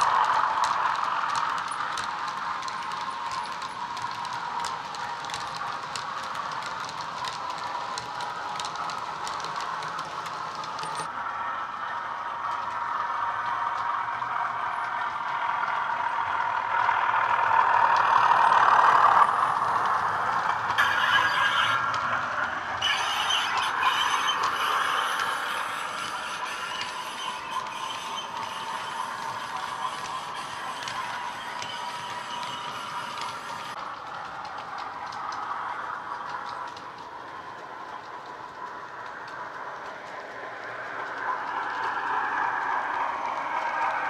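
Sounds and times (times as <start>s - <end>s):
model train wheels rattling: 0.0s - 11.4s, 12.0s - 44.0s
high squeal: 20.8s - 33.8s.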